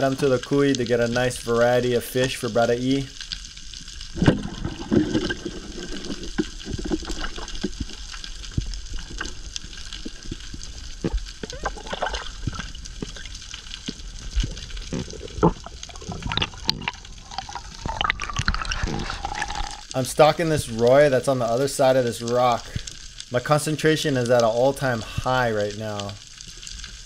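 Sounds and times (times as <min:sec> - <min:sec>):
crackling clicks: 0:00.0 - 0:27.0.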